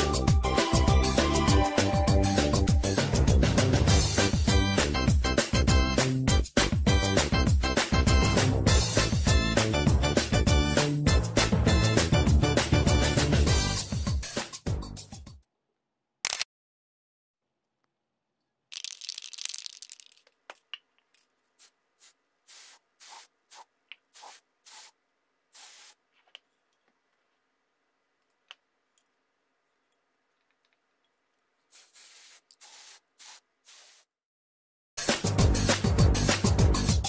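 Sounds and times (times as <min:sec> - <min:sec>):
aerosol can spraying: 0:21.6 - 0:26.0, 0:31.7 - 0:34.1.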